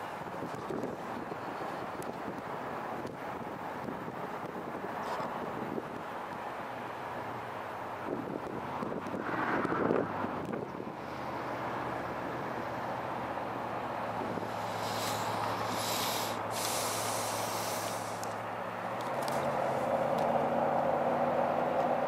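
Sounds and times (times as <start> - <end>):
hiss: 14.4 - 18.4.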